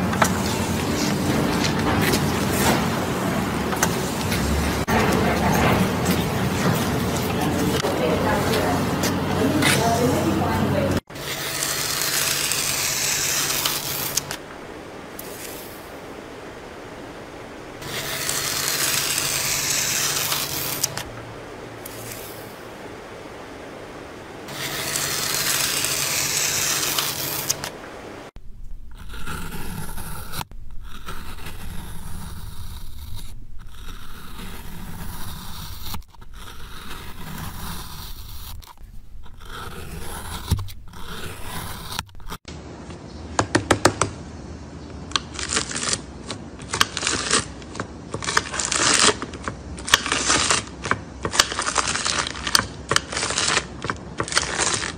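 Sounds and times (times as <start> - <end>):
peeler scraping soft material: 0.0 - 14.4, 15.2 - 15.9, 17.8 - 21.1, 21.8 - 22.6, 24.5 - 27.7, 28.9 - 42.5
scraping over embossed sheet: 0.0 - 14.4, 15.2 - 15.9, 17.8 - 21.1, 21.8 - 22.6, 24.5 - 27.7, 28.8 - 42.5
knife cutting with crackling clicks: 24.5 - 27.8.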